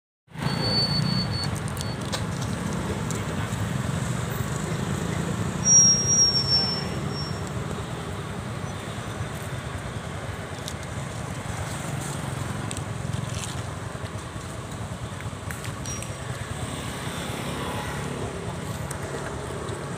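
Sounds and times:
distant road traffic rumble: 0.3 - 19.9
short high-pitched squeal: 0.4 - 2.0, 5.5 - 7.5.

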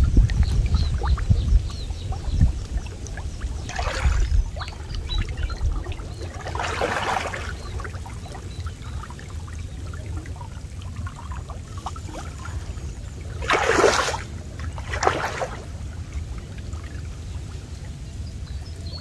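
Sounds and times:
water splashing and sloshing: 0.0 - 19.0
loud splashes: 3.7 - 4.3, 6.4 - 7.6, 13.4 - 15.6.

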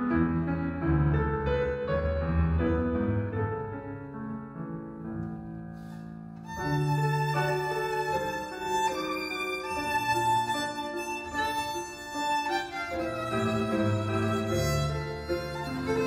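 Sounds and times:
grand piano playing: 0.0 - 16.0
violin bowing long notes: 6.4 - 16.0.

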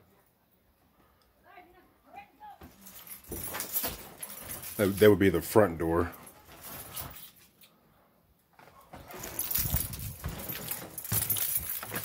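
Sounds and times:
clinking jingling rattle: 2.7 - 5.4, 9.1 - 12.0
footsteps on bare floor: 8.6 - 12.0.

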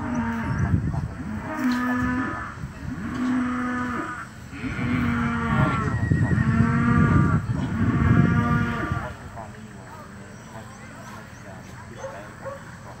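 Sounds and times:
cattle mooing: 1.2 - 9.2.

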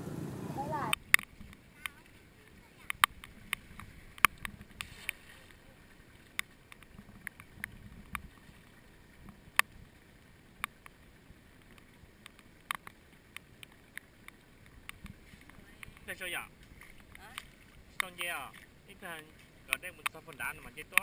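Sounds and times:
floodwater splashing and sloshing: 0.0 - 21.0
sharp ticks: 0.9 - 4.9, 19.7 - 21.0.

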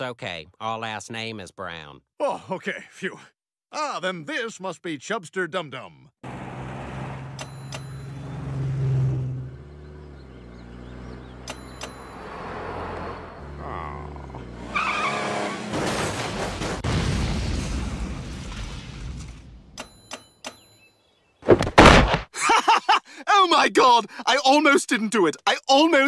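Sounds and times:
tyres screeching: 10.7 - 15.9
cartoon car engine revving: 12.1 - 16.8
crash and explosion: 15.6 - 19.8, 21.5 - 22.3.

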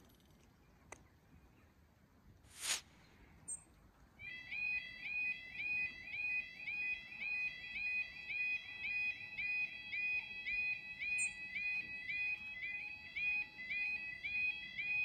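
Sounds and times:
level crossing warbling alarm: 4.3 - 15.0.

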